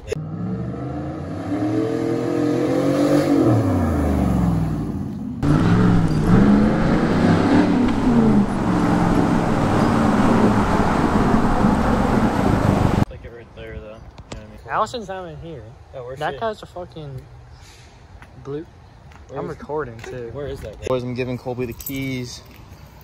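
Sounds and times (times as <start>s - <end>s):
pickup truck exhaust revving: 0.0s - 13.0s.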